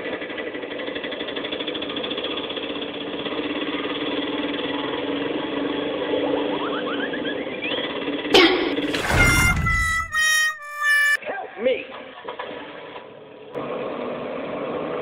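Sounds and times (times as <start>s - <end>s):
small engine idling: 0.0s - 6.8s.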